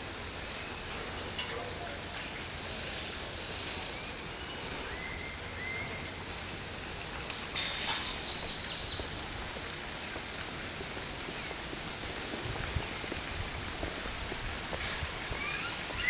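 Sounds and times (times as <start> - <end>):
outdoor garden ambience hiss: 0.0 - 16.0
high whistling bird call: 3.8 - 6.0, 7.8 - 9.2.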